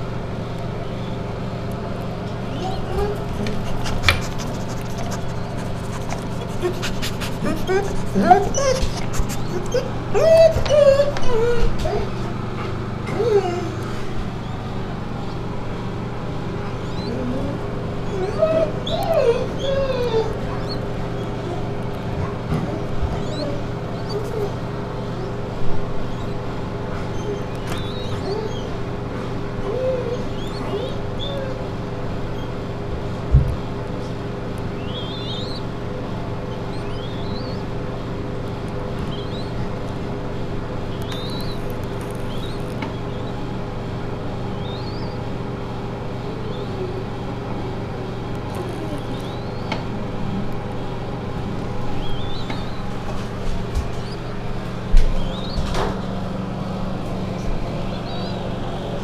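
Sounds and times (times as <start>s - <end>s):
steady low hum: 0.0s - 59.0s
dog whimpering: 2.5s - 12.4s, 13.1s - 14.7s, 16.6s - 25.5s, 26.1s - 32.6s, 34.8s - 35.7s, 36.5s - 37.7s, 39.1s - 39.6s, 46.2s - 47.2s, 48.5s - 49.8s, 51.9s - 53.0s, 55.1s - 55.8s
faint high bird chirps: 16.7s - 17.5s, 27.1s - 28.7s, 34.8s - 35.7s, 36.5s - 37.7s, 39.1s - 39.6s, 40.9s - 43.4s, 44.6s - 45.2s, 48.6s - 49.8s, 51.9s - 52.9s, 55.2s - 55.8s, 57.4s - 58.9s.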